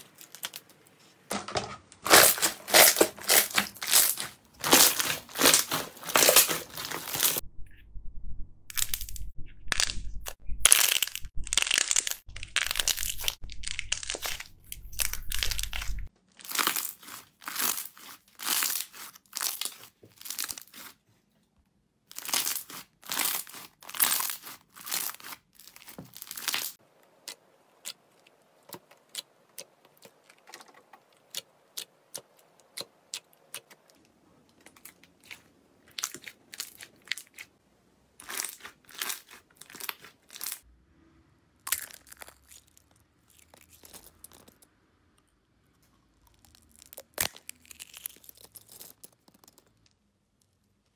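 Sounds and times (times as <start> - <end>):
slime squelching: 2.0 - 7.4, 8.7 - 21.0, 22.1 - 40.6, 41.6 - 44.7, 45.7 - 50.1
low hum: 7.4 - 11.6.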